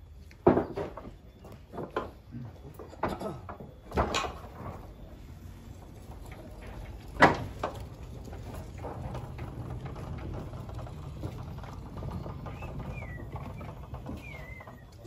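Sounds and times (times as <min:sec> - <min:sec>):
small clunks: 0:00.2 - 0:05.0, 0:06.2 - 0:15.0
low steady rumble: 0:04.9 - 0:14.8
small bird chirping: 0:12.5 - 0:15.0.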